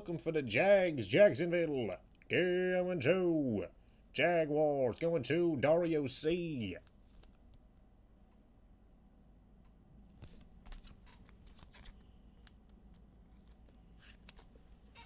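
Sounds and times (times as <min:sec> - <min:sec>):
cards rustling: 0:10.1 - 0:15.0.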